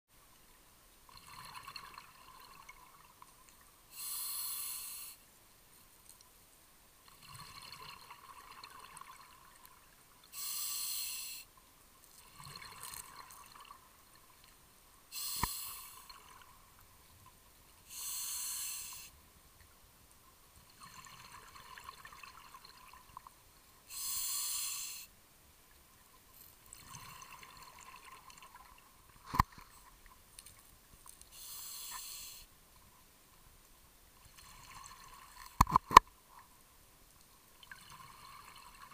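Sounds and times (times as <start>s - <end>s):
regulator breathing hiss: 3.9s - 5.2s, 10.3s - 11.5s, 15.1s - 16.1s, 17.9s - 19.2s, 23.9s - 25.1s, 31.3s - 32.5s.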